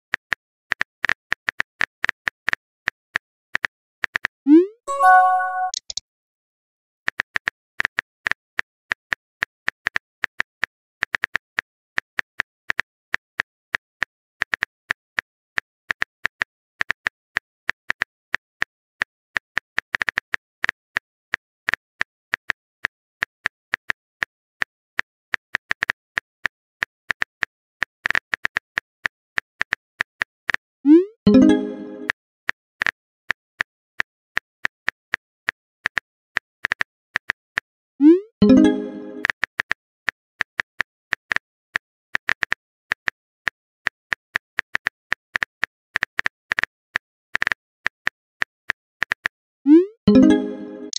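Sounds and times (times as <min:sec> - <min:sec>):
rising pop message sent sound: 0:04.5 - 0:06.0, 0:30.9 - 0:32.1, 0:38.0 - 0:39.3, 0:49.7 - 0:50.9
phone keyboard typing clicks: 0:04.9 - 0:06.0.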